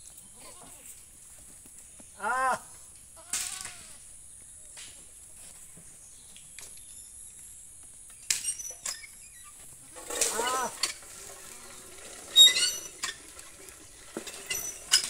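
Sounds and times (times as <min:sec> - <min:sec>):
goat bleating: 0:09.8 - 0:10.8.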